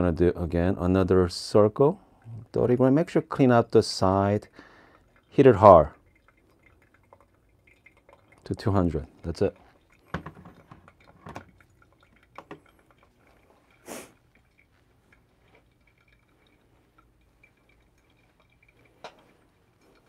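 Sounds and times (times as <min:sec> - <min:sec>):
coffee dripping through filter: 0:00.0 - 0:20.0
brief hiss: 0:13.8 - 0:14.2.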